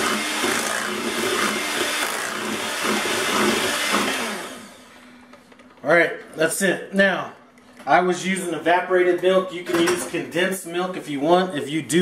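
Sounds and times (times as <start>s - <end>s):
electric hand mixer running: 0.0s - 5.0s.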